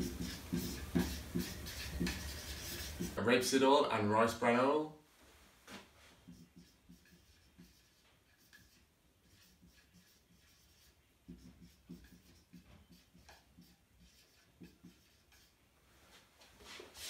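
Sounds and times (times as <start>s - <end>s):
marker scratching on whiteboard: 0.0s - 3.2s, 6.1s - 15.6s.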